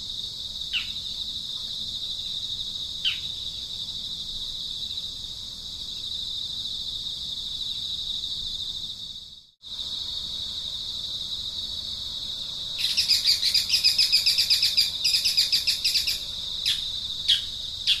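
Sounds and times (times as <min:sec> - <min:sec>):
high-pitched insect trilling: 0:00.0 - 0:18.0
rapid chirps: 0:12.8 - 0:18.0.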